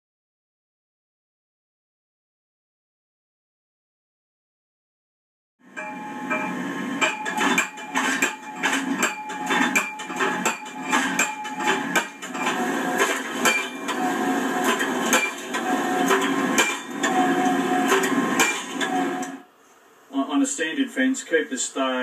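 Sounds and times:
tractor engine running: 5.8 - 19.4.

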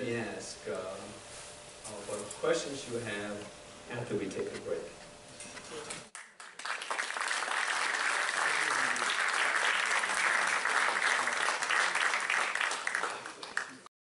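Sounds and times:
audience applauding: 6.2 - 13.9.

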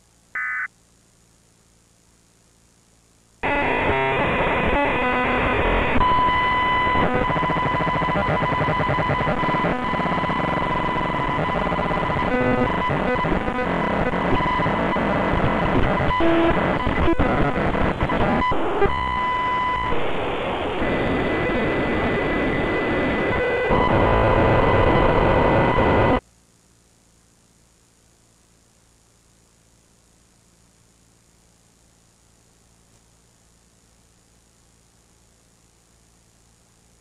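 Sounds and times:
steady high-pitched tone: 0.4 - 0.7, 3.4 - 26.2
harsh distorted static: 2.8 - 26.2.

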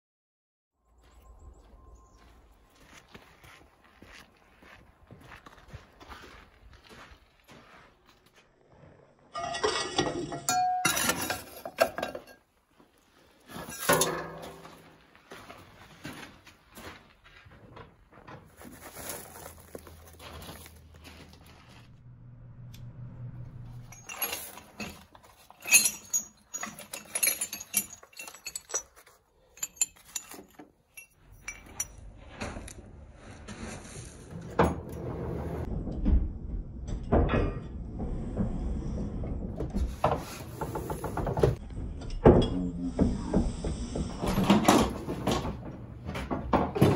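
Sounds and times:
steel tools clinking together: 9.4 - 12.4, 23.9 - 32.0.

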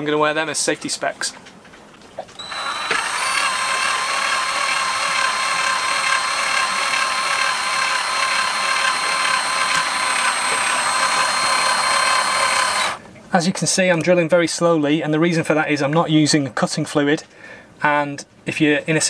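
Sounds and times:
power drill drilling into metal: 2.4 - 13.0.

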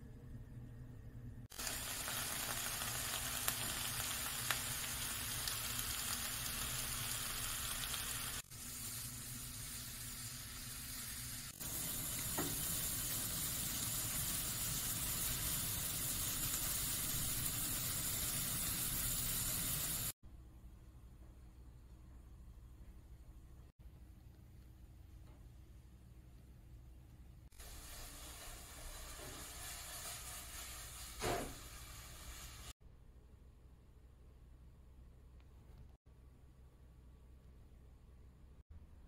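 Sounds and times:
oysters sizzling in a frying pan: 1.5 - 20.2, 27.6 - 32.7.

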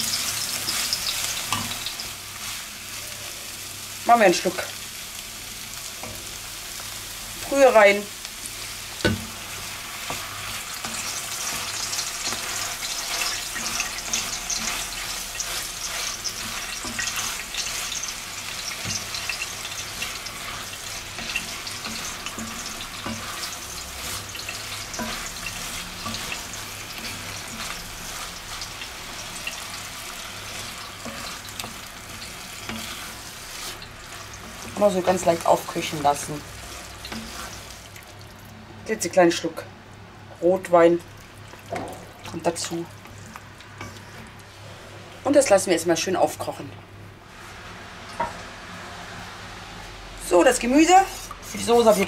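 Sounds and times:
vegetables sizzling in a pot: 0.0 - 52.0
wooden spoon scraping: 10.0 - 29.3, 30.1 - 35.1, 35.9 - 37.8, 50.9 - 52.0.

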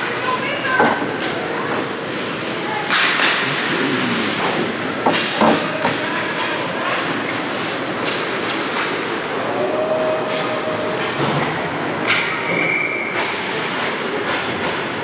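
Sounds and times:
hockey sticks and puck clacking: 2.1 - 3.7, 6.9 - 9.3, 12.0 - 14.8.

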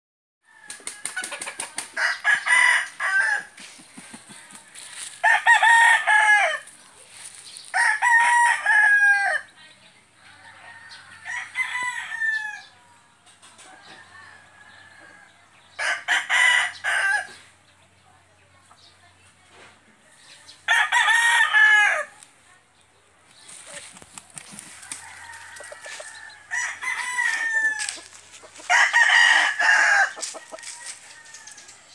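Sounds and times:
roosters crowing: 0.4 - 9.6, 10.2 - 12.8, 13.6 - 17.5, 20.6 - 22.2, 23.8 - 31.9.

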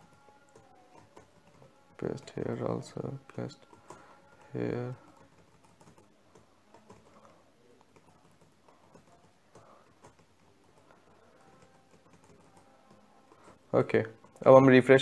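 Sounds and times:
faint keyboard clicks: 3.3 - 13.6.

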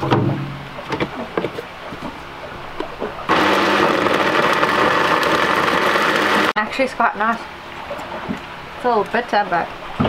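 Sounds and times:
blender motor running: 3.3 - 6.6.

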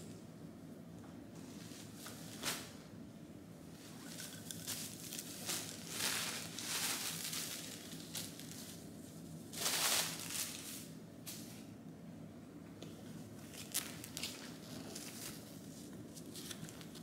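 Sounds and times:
packaging rustling and crinkling: 3.9 - 8.9, 9.5 - 10.9, 13.4 - 17.0.

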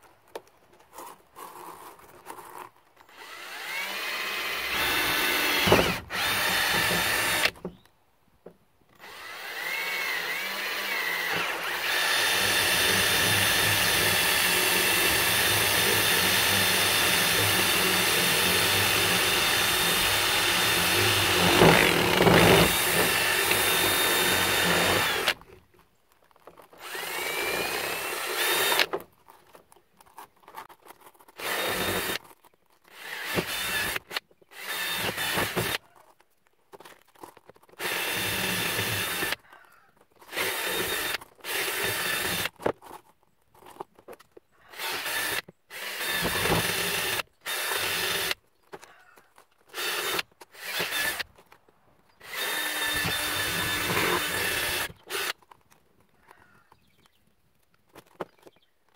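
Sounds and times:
cordless drill boring plastic: 1.5 - 7.8, 9.0 - 25.6, 26.5 - 29.6, 30.6 - 36.0, 37.1 - 39.5, 40.2 - 43.0, 44.6 - 48.4, 49.7 - 51.4, 52.2 - 55.7.

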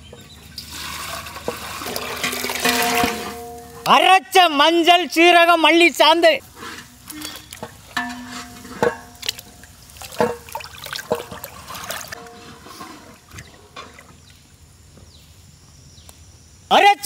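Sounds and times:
water sloshing and splashing: 0.2 - 3.8, 6.4 - 14.4
steel pot metallic rings: 2.0 - 4.1, 6.6 - 10.5, 12.1 - 12.8.

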